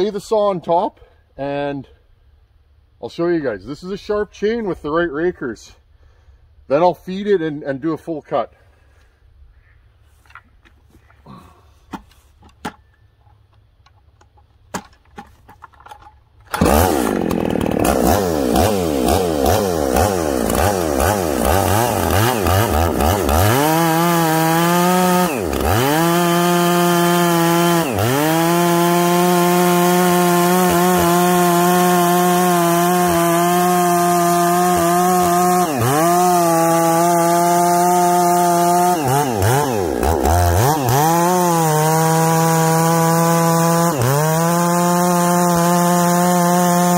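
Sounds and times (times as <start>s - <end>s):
chainsaw cutting log at high revs: 16.5s - 46.9s.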